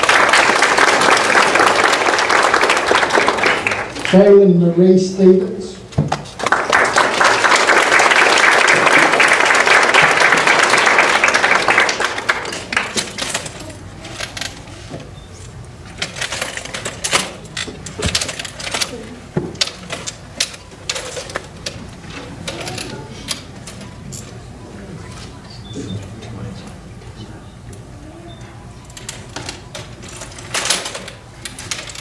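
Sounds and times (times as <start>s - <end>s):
audience applauding: 0.0s - 4.2s, 6.3s - 13.0s.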